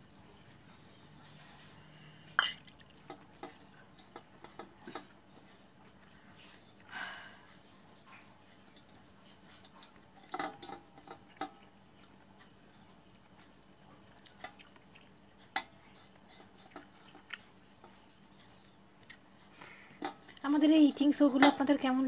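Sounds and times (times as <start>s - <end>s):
soft chewing: 0.3s - 20.5s.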